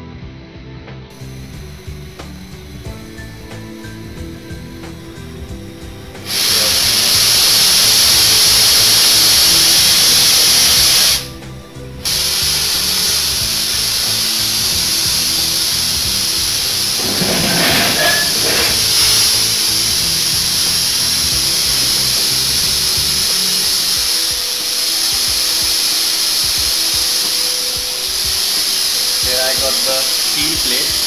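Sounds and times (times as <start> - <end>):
welding torch hissing: 1.1 - 31.0
hose and torch handling: 6.2 - 11.3, 12.0 - 31.0.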